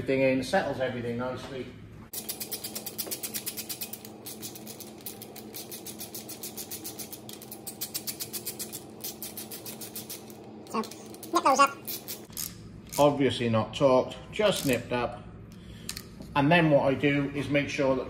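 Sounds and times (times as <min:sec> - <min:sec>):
hand ratchet clicking: 0:02.1 - 0:13.0.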